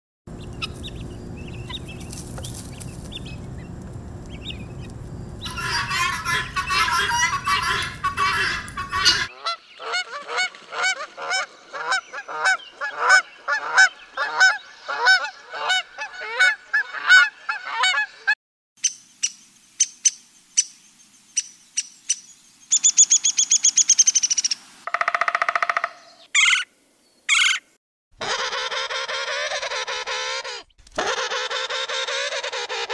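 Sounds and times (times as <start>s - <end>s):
fast high bird trill: 0.3s - 3.7s, 4.3s - 9.3s
geese honking: 0.3s - 18.3s
buzzy bird call: 0.4s - 18.1s, 22.7s - 26.7s.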